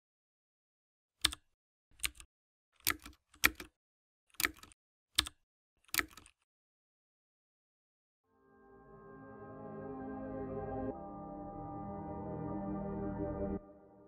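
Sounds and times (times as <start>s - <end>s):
keyboard key clicks: 2.0s - 6.4s.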